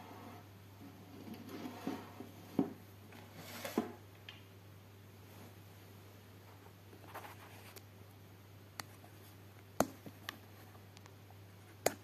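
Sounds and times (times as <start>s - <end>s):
faint scraping: 0.0s - 4.0s.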